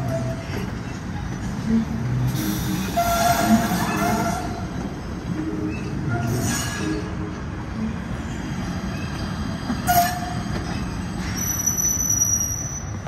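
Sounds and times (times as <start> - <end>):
train wheels rumbling on rails: 0.0 - 13.0
high wheel squeal: 2.4 - 4.8, 8.2 - 13.0.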